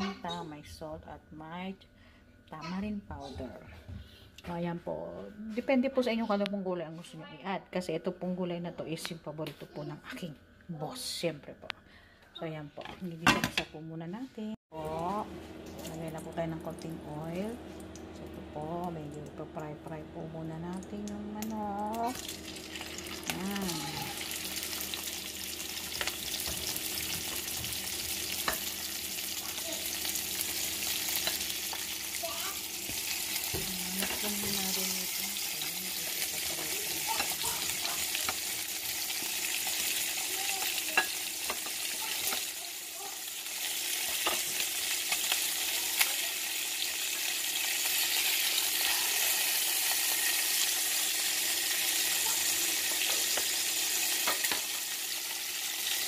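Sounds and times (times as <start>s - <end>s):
chicken sizzling in oil: 21.1s - 56.0s.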